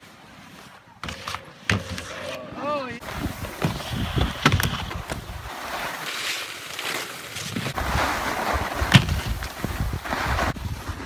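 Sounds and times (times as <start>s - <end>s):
skis scraping over snow: 0.0s - 11.0s
wind on microphone: 3.0s - 5.5s, 7.7s - 11.0s.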